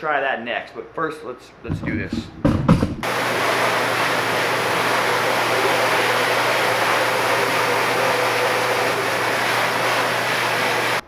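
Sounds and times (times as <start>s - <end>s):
pressure washer spray hiss: 3.0s - 11.0s.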